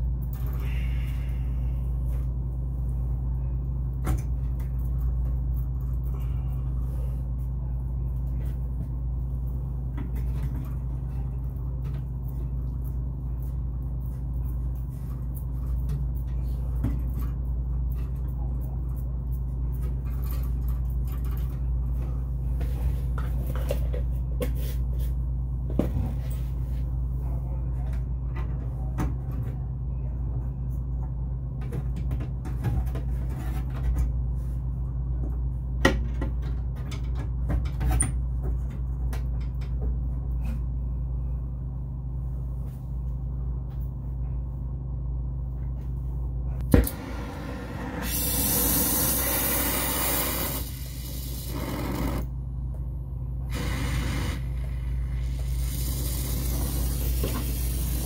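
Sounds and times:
steady low hum: 0.0 - 58.0
brazing torch hissing: 47.8 - 51.6.

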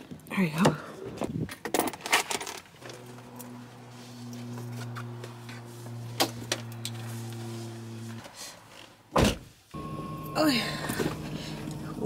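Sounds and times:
low electric hum: 9.8 - 12.0.

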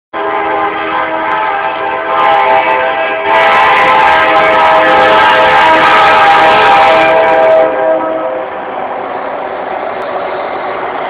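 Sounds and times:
locomotive air horn blast: 0.2 - 8.7.

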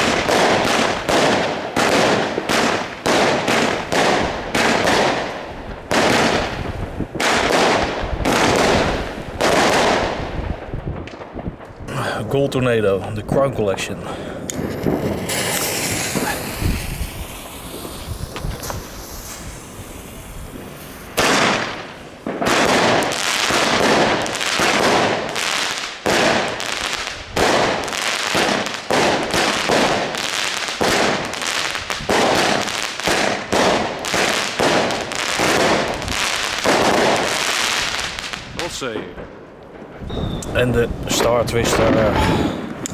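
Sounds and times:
firework shots: 0.0 - 12.0, 14.4 - 42.9
firework crackling: 0.0 - 12.4, 14.4 - 42.9
firework hissing: 14.4 - 38.7.

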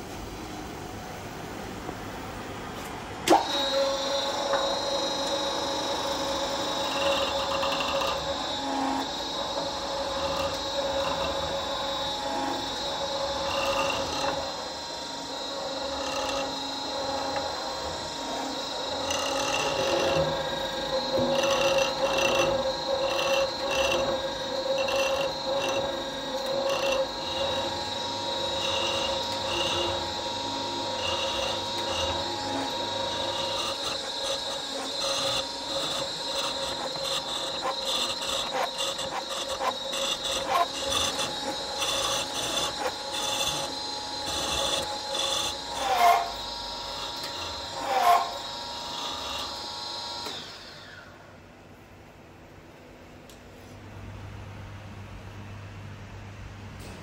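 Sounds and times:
motor whine: 3.3 - 51.3
rasping scraping strokes: 18.6 - 46.4.

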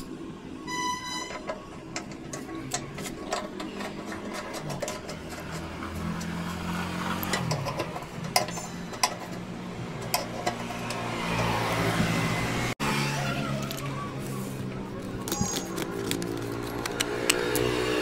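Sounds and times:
small engine running: 10.6 - 18.0.

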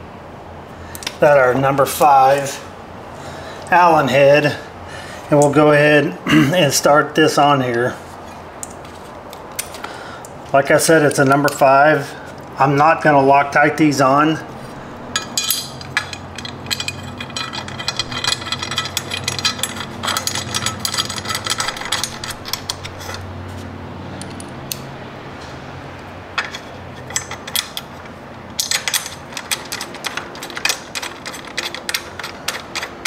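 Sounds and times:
small metal clinks: 15.0 - 23.3, 26.4 - 33.0
hand ratchet clicking: 15.2 - 23.3, 26.4 - 33.0.

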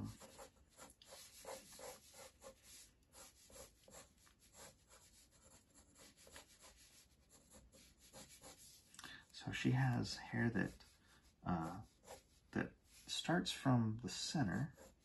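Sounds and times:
pencil scratching on paper: 0.0 - 8.9, 10.4 - 13.2, 14.6 - 15.0.

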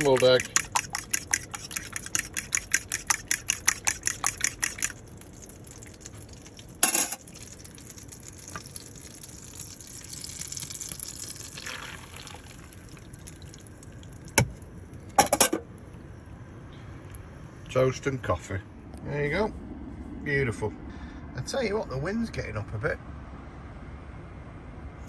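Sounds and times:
fork beating eggs in a bowl: 0.0 - 5.5.

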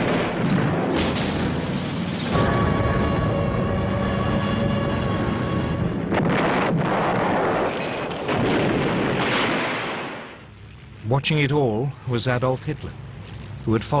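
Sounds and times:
bomb explosion blasts: 0.0 - 4.0, 5.5 - 10.5
continuous rumbling roar: 0.0 - 14.0.

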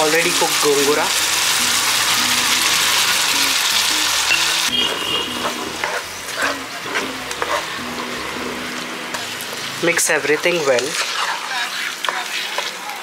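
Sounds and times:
curry sizzling in a pan: 0.0 - 13.0
spoon scraping a pan: 4.7 - 9.8, 10.4 - 12.8.

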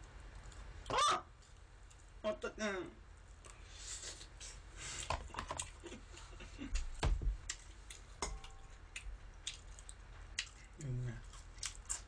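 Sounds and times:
dull thump: 7.0 - 7.4
crunchy chewing: 7.4 - 12.0.

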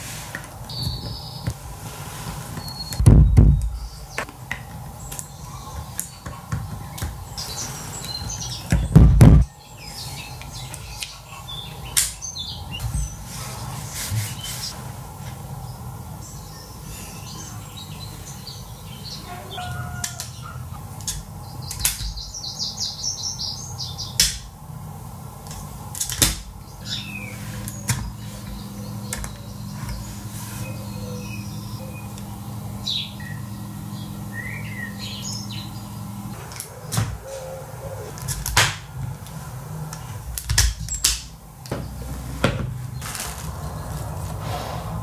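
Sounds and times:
birds chirping: 0.3 - 14.8, 15.4 - 25.9, 26.5 - 45.0
loud thump: 3.0 - 3.6
bird trilling: 34.3 - 38.3.

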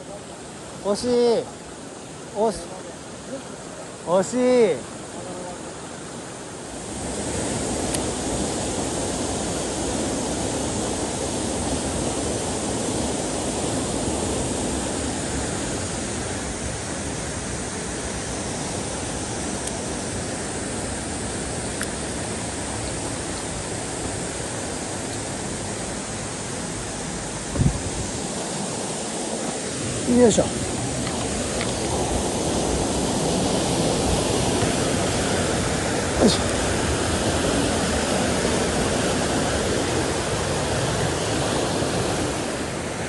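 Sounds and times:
stream rushing over rocks: 0.0 - 43.0.

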